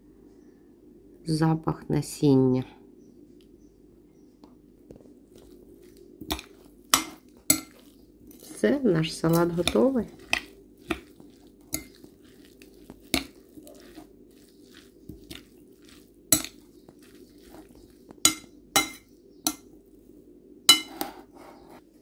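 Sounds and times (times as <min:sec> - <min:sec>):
metal utensil clinking on glass bowl: 0:18.3 - 0:19.6.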